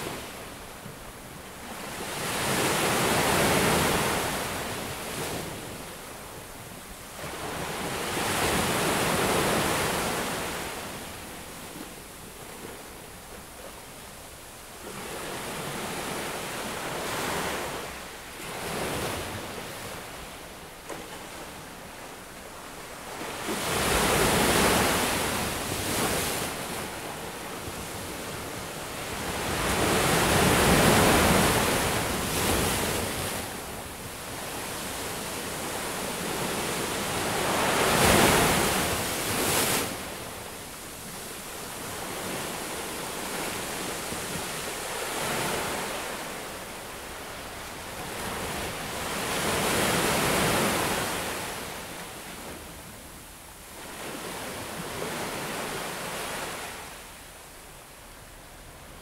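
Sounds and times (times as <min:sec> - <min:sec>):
ocean waves breaking on a beach: 0:00.0 - 0:59.0.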